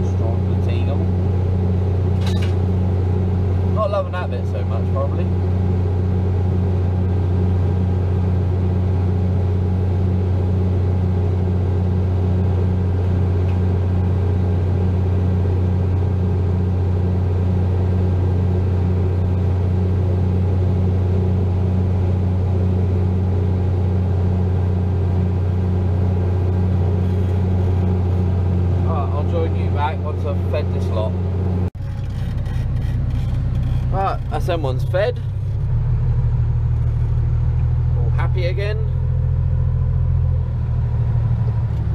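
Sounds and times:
bale chopper running: 0:00.0 - 0:36.2
tractor diesel engine running: 0:00.0 - 0:41.9.

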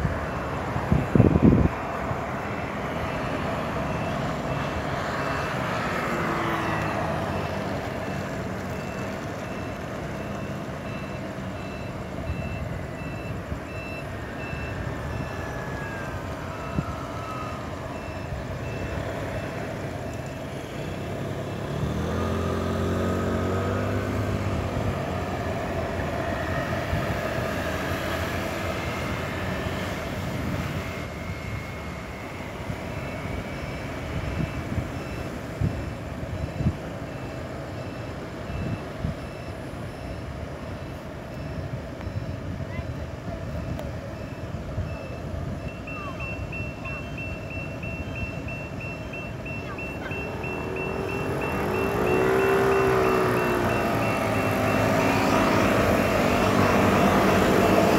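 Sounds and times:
hum of passing vehicles: 0:00.0 - 0:57.9
engine revving: 0:20.6 - 0:29.6, 0:49.6 - 0:57.9
short high beeps: 0:43.7 - 0:57.9.

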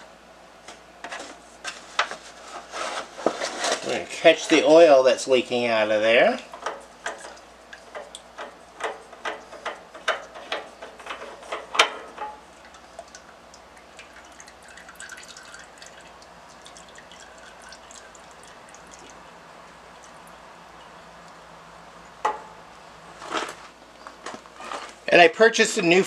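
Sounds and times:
oil dripping into container: 0:06.6 - 0:22.7.

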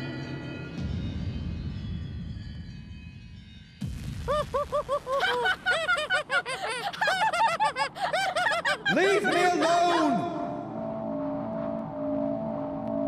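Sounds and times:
cartoon children laughing: 0:04.3 - 0:10.3.

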